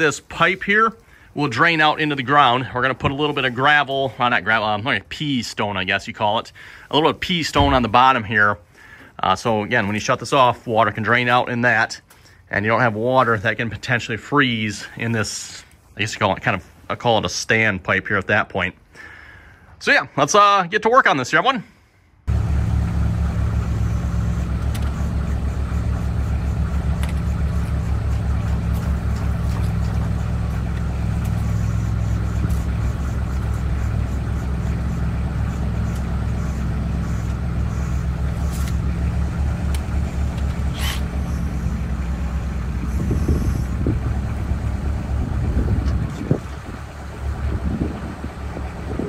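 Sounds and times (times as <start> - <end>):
engine running steadily: 22.3 - 49.0.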